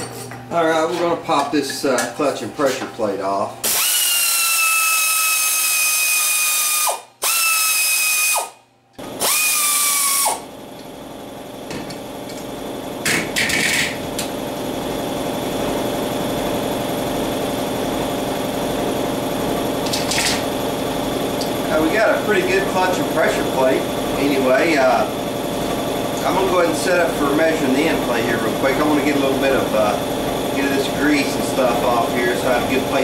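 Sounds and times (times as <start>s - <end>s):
air ratchet whining: 3.6s - 10.9s
steady low hum: 10.4s - 33.0s.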